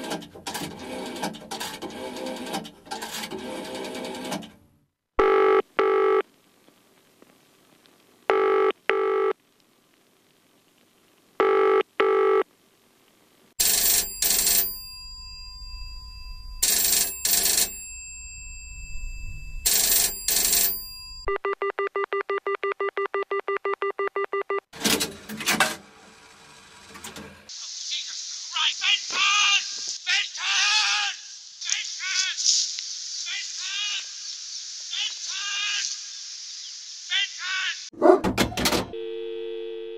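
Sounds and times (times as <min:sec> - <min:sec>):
telephone double ring: 0:13.6 - 0:21.3.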